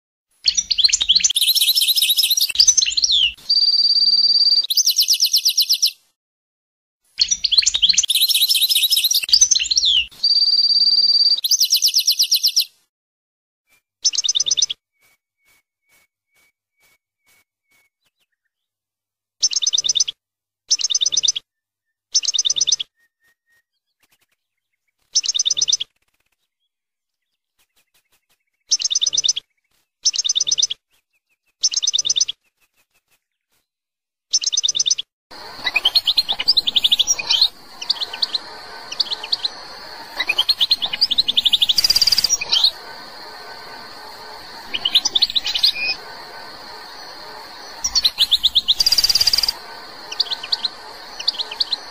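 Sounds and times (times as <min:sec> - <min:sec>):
bird twittering song: 0:00.4 - 0:06.0, 0:07.2 - 0:12.7, 0:14.0 - 0:18.7, 0:19.4 - 0:33.6, 0:34.3 - 0:51.9
goldfinch buzzy calls: 0:35.3 - 0:51.9
steady hiss: 0:35.3 - 0:51.9.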